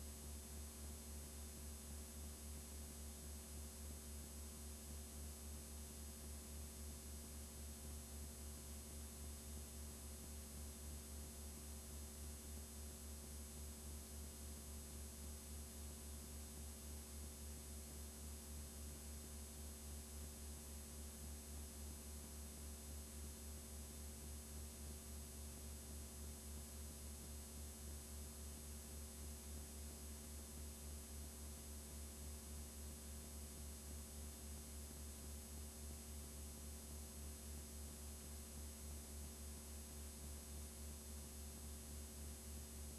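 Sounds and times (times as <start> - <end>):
low electrical hum: 0.0 - 42.9.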